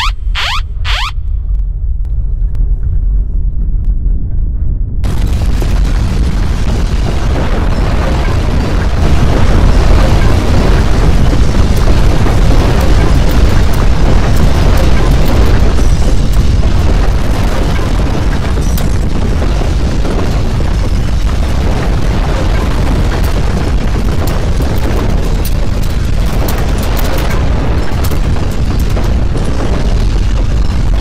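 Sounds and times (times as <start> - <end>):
crackles: 0.0 - 31.0
deep earthquake rumble: 0.0 - 31.0.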